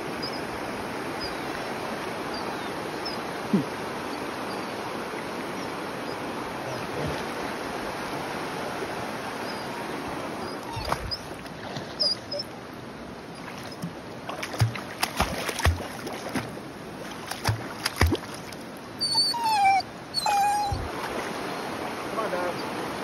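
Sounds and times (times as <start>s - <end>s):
shallow river water rushing: 0.0s - 23.0s
dog whining: 10.4s - 11.3s, 12.0s - 12.5s, 19.0s - 20.9s
knocks in water: 14.3s - 16.5s, 17.1s - 18.6s.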